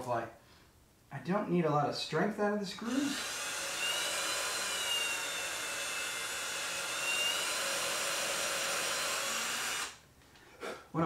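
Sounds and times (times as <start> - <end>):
cordless drill motor whine: 3.0 - 10.0.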